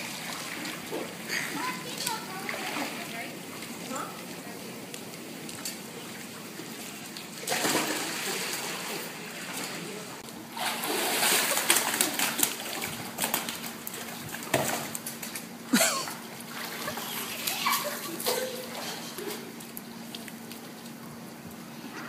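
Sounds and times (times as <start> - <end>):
pool water splashing: 0.0 - 22.0.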